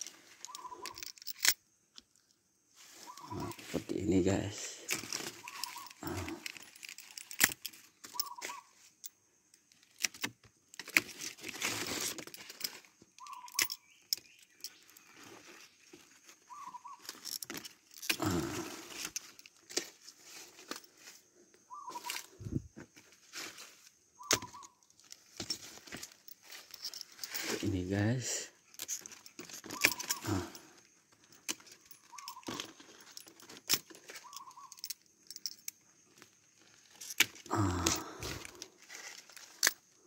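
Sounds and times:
leaves rustling: 2.7s - 6.5s, 10.8s - 13.4s, 18.2s - 28.2s, 36.7s - 39.6s.

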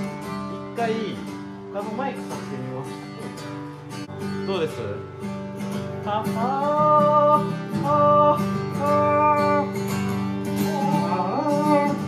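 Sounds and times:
ringing guitar chords: 0.0s - 12.0s
person singing long notes: 6.0s - 12.0s.

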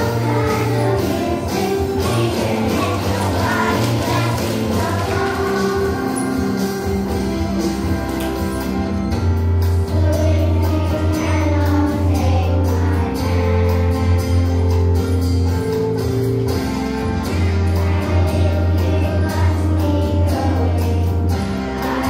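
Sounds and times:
children's choir singing: 0.0s - 8.1s, 9.9s - 14.8s, 17.6s - 22.0s
music with steady bass and beat: 0.0s - 22.0s.

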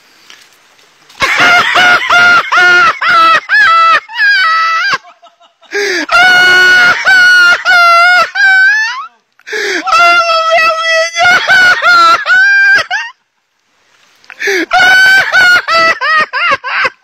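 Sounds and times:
person screaming: 5.8s - 12.8s.

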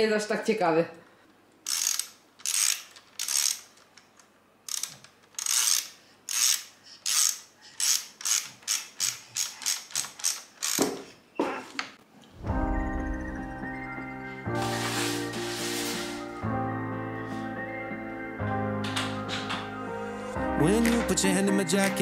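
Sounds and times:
hand ratchet clicking: 1.6s - 4.0s, 4.7s - 11.1s.

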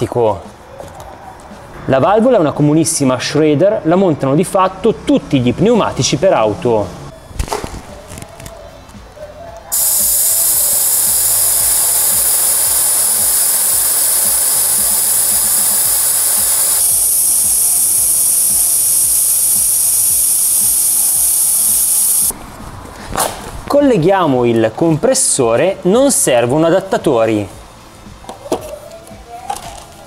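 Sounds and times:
air hissing out of tyre valve: 9.7s - 22.3s.

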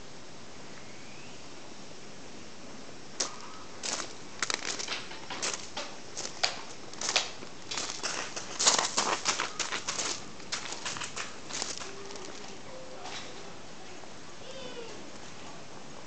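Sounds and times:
footsteps crunching on gravel: 3.2s - 12.6s.

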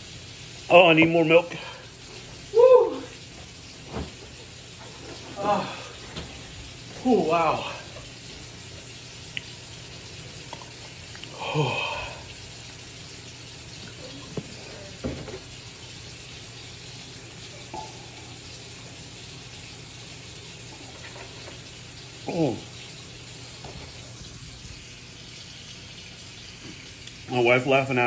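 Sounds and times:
low hum and hiss: 0.0s - 28.0s
person groaning: 2.5s - 3.1s, 5.4s - 6.0s, 7.0s - 7.9s, 11.3s - 12.3s.

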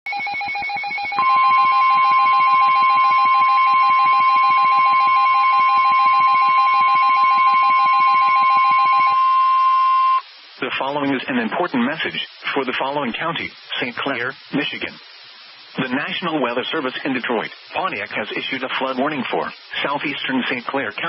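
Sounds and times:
fast two-pitched beeping: 0.1s - 10.2s
loud steady alarm tone: 0.1s - 10.2s.

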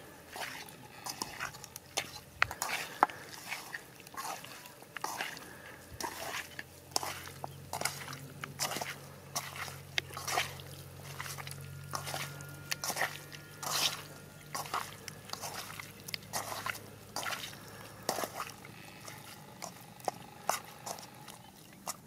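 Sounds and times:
hand squelching raw chicken: 0.0s - 22.0s
low steady hum: 0.0s - 22.0s.

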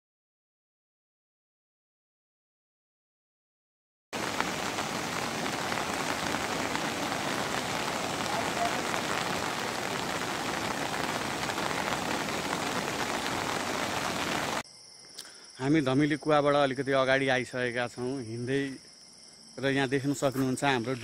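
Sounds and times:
steady rain falling: 4.2s - 14.6s.

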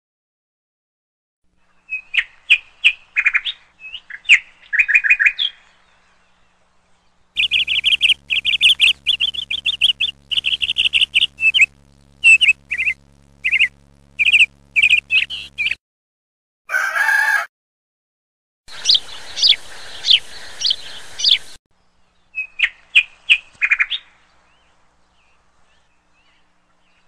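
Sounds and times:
faint low hum: 6.0s - 15.8s
parakeets chirping: 7.4s - 15.8s, 18.7s - 21.6s.

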